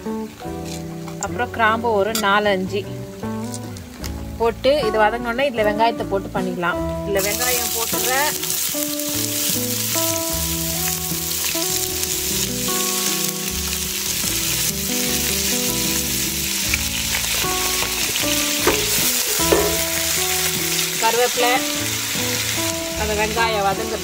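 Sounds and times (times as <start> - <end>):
onions sizzling in hot oil: 7.2 - 24.0.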